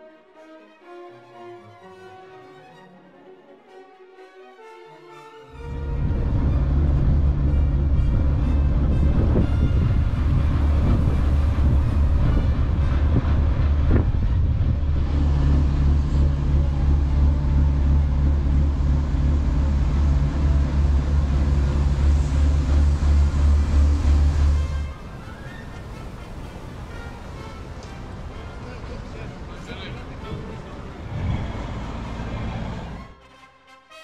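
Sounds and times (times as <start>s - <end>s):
boat diesel engine throbbing: 5.5s - 33.2s.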